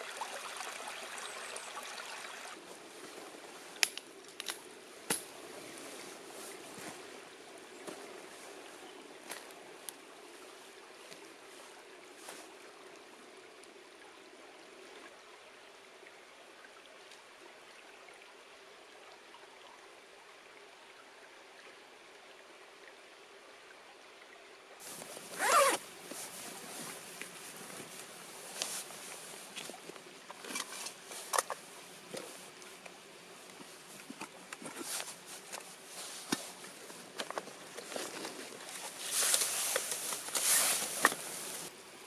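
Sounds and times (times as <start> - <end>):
zipper pulled: 25.0 - 25.8.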